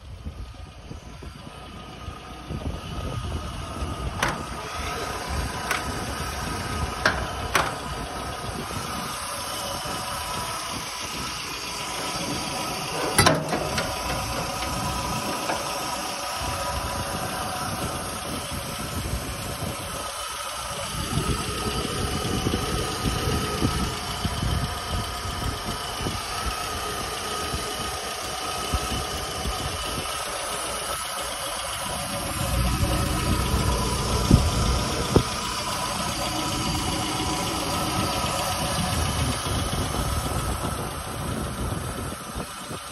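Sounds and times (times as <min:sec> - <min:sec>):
car engine idling: 0:00.0 - 0:42.9.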